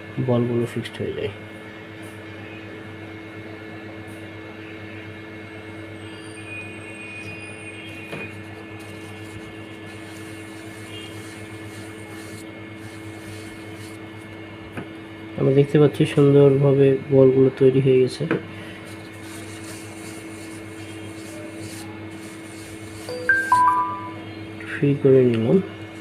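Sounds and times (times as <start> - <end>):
faint high whine: 5.5 - 14.2, 18.6 - 25.7
electric fan humming: 7.3 - 26.0.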